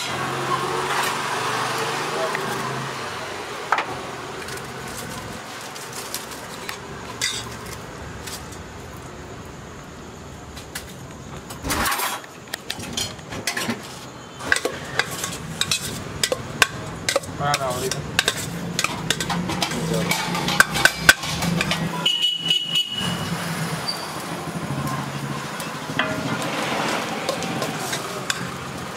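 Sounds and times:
ladle scraping steel pot: 0:11.8 - 0:21.9, 0:26.0 - 0:28.6.

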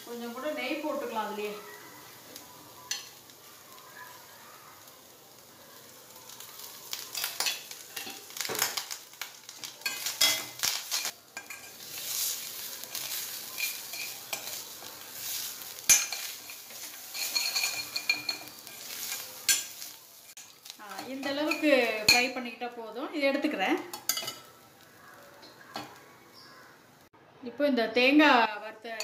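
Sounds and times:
light sizzle: 0:00.0 - 0:27.2
spoon scraping metal pan: 0:02.8 - 0:03.2, 0:06.6 - 0:08.9, 0:09.8 - 0:22.4, 0:23.8 - 0:24.6.

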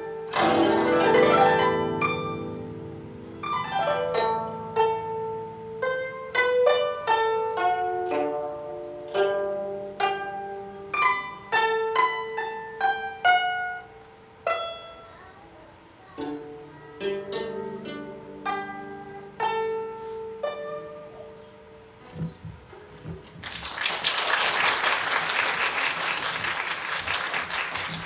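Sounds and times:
plucked zither notes: 0:00.0 - 0:22.3.

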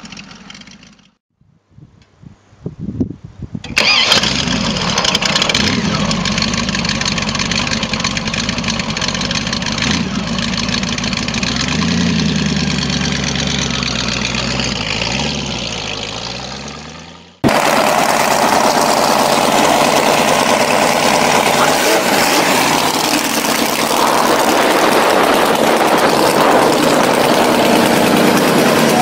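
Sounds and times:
motorcycle engine idling loudly: 0:00.0 - 0:01.2, 0:04.3 - 0:15.0, 0:17.4 - 0:29.0
motorcycle pulling away: 0:00.0 - 0:01.2, 0:03.8 - 0:29.0
motorcycle starter cranking: 0:03.6 - 0:11.8
motorcycle engine revving: 0:03.8 - 0:29.0.

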